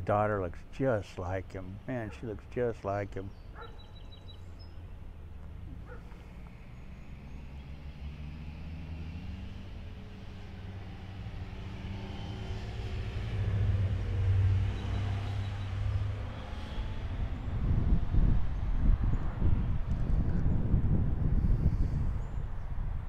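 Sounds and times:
passing vehicle engine rumble: 0.0s - 23.0s.

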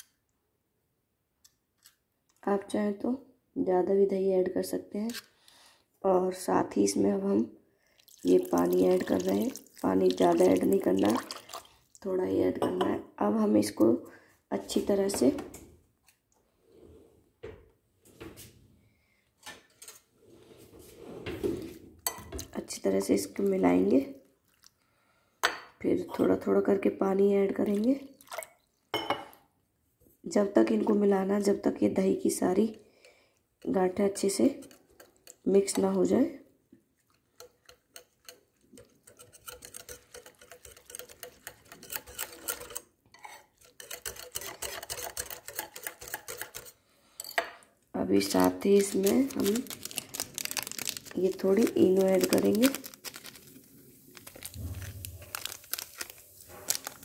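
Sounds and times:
rustling scrape: 19.7s - 21.9s, 48.8s - 57.0s
whisk clicking against steel bowl: 37.3s - 42.8s, 43.6s - 46.7s.

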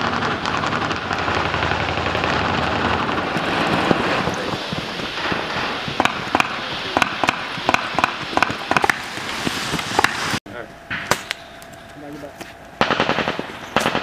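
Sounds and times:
rifles firing blank rounds: 12.8s - 14.0s.

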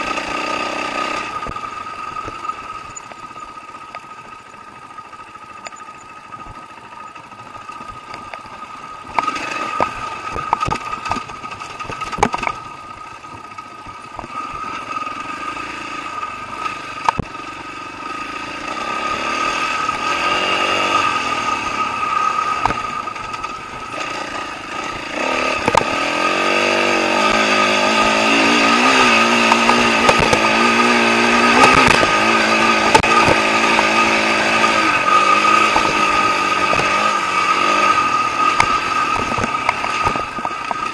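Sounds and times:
dirt bike engine revving: 0.0s - 40.9s.

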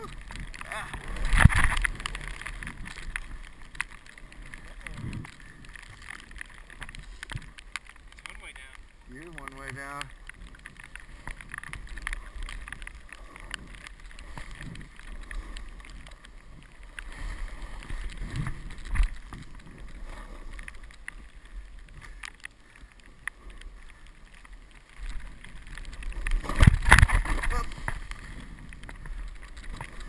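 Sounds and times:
wind on microphone: 0.0s - 3.5s.

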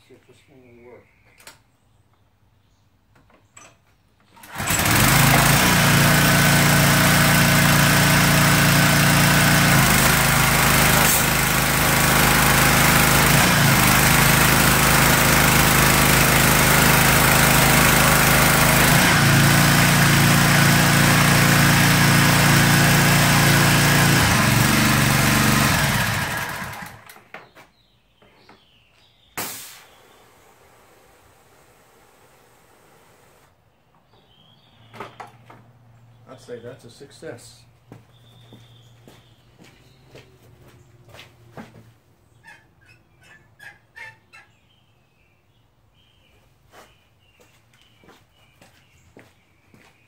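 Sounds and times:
small gasoline engine running: 4.4s - 27.2s
high-pressure spray hissing: 29.4s - 30.1s.

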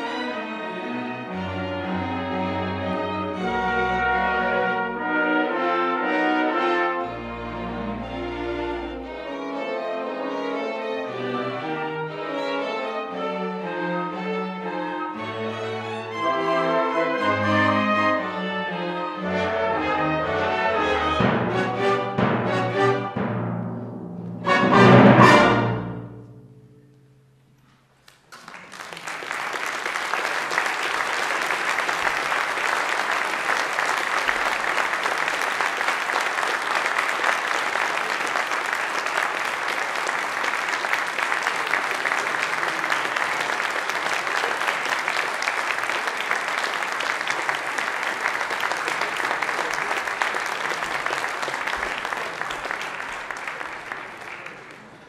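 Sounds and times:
orchestra chord with timpani: 0.0s - 10.3s, 13.2s - 27.4s
audience applause: 28.2s - 55.0s.

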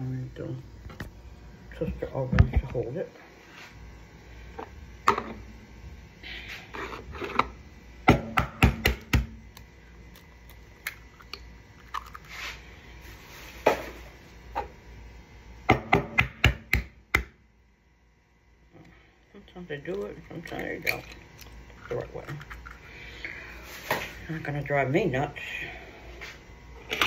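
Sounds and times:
eggshell being pulled apart: 9.5s - 12.5s.

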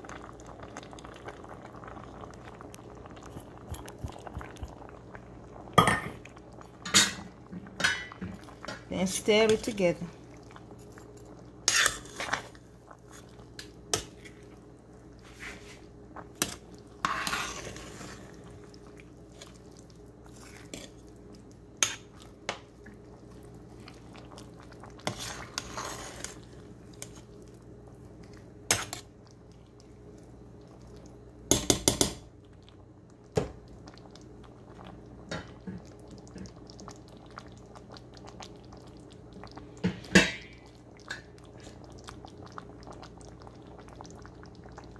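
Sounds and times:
metal spoon scraping a metal pot: 11.7s - 12.4s, 17.0s - 18.1s.

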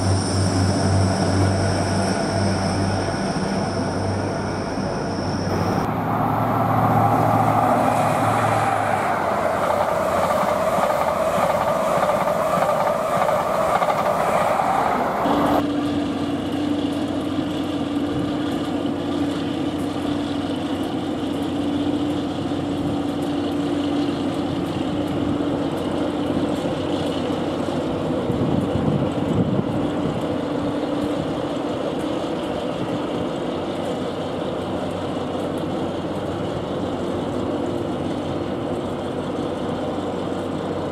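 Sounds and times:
diesel engine idling: 0.0s - 15.6s
train rushing rail noise: 0.0s - 16.8s, 17.8s - 40.9s.

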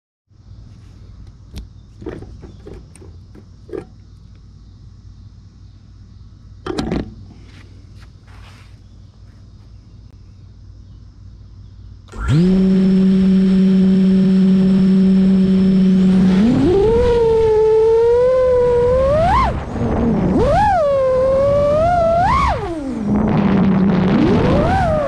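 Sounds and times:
drone motors whining: 12.1s - 25.0s.

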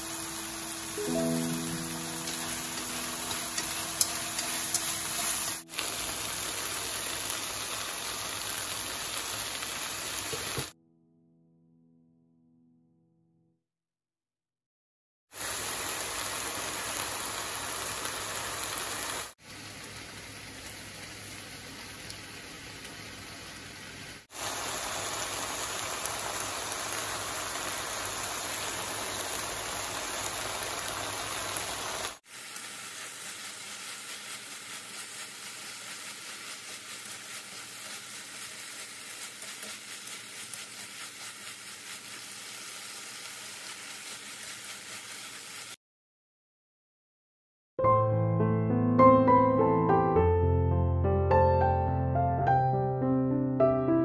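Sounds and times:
food sizzling in oil: 0.0s - 10.8s, 15.3s - 45.8s.

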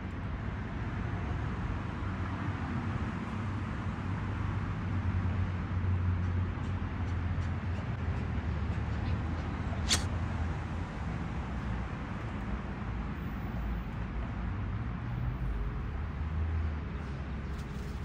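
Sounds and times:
distant road traffic rumble: 0.0s - 18.0s
sharp click: 9.8s - 10.1s.

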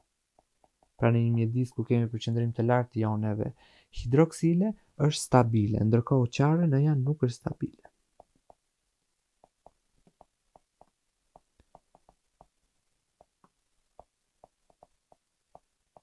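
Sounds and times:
stylus tapping on tablet: 0.0s - 1.5s, 8.2s - 8.7s, 9.4s - 12.6s, 13.2s - 16.0s.

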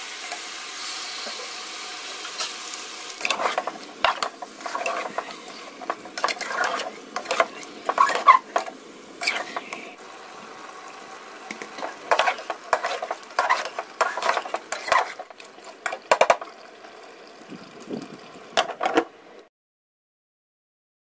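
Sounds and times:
metal spoon scraping a pot: 3.2s - 9.8s, 11.5s - 16.4s.

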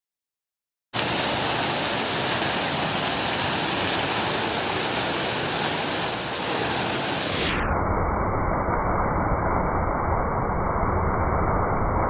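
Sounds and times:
fountain water splashing: 1.0s - 7.6s.

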